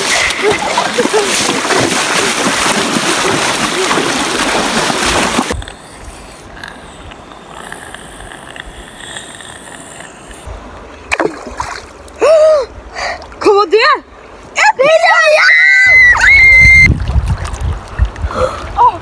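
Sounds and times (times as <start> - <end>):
river water rushing over stones: 0.0 - 5.6.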